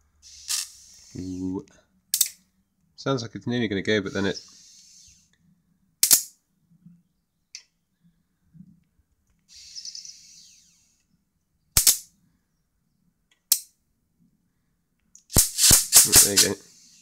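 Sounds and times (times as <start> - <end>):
hissing crackle of arc: 0.2 - 1.5, 15.3 - 17.0
electric sparks snapping: 15.3 - 16.6.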